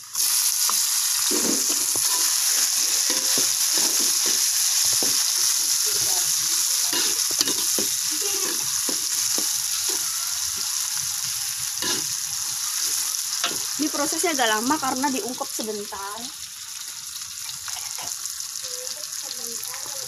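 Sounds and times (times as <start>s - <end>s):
vegetables sizzling in hot oil: 0.0s - 20.0s
metal spatula scraping wok: 0.2s - 15.0s.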